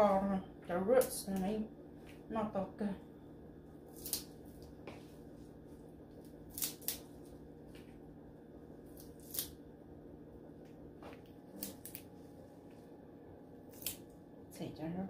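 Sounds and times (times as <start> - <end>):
low steady hum: 0.0 - 15.0
stems snapping: 3.9 - 4.8, 6.2 - 7.9, 8.9 - 9.6, 11.0 - 12.1, 13.7 - 14.0.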